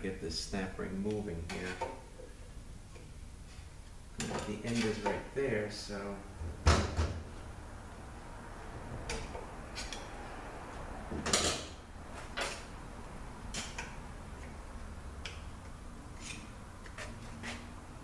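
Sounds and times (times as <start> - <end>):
tool scraping metal: 4.2 - 5.2, 16.1 - 17.9.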